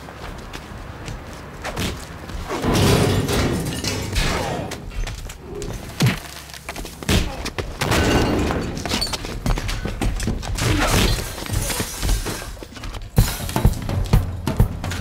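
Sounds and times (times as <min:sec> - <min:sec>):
thuds and bangs: 0:01.7 - 0:05.0.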